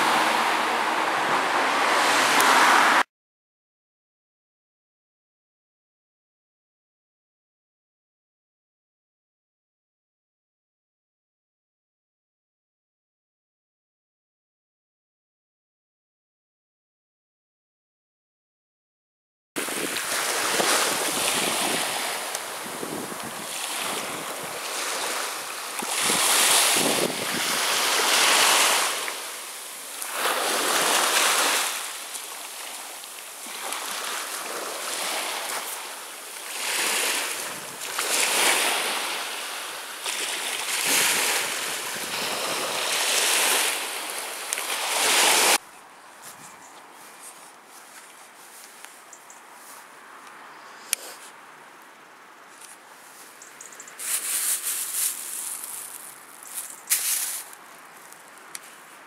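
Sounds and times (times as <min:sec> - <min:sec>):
waves breaking on sandy beach: 0:00.0 - 0:03.0, 0:19.6 - 0:45.6.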